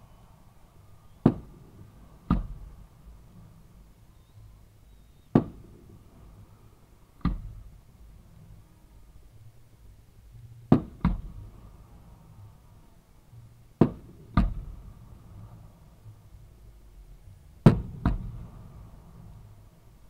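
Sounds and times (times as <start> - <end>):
fireworks bangs echoing: 1.1 - 2.8, 5.3 - 6.2, 10.7 - 11.4, 17.6 - 19.3.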